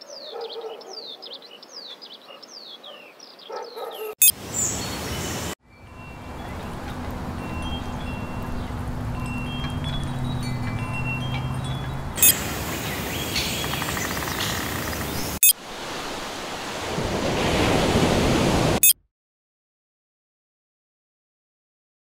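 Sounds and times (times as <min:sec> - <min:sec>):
high chime tones: 0:05.7 - 0:12.6
hissing noise: 0:12.2 - 0:15.4.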